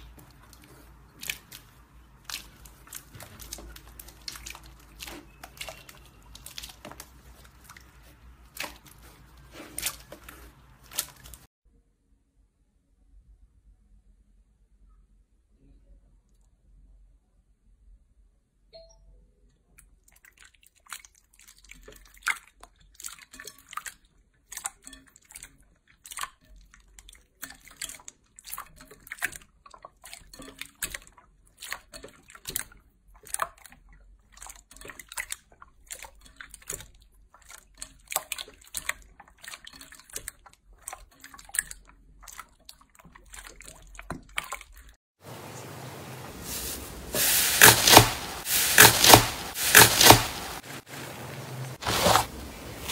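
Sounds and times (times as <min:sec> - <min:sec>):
slime squished by hand: 0:00.0 - 0:11.5, 0:47.1 - 0:50.6
slime hissing and crackling: 0:46.4 - 0:50.9.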